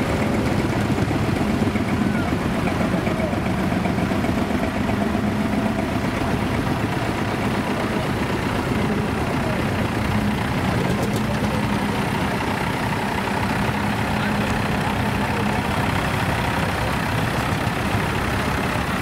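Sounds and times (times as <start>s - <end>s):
heavy engine idling: 0.0s - 19.0s.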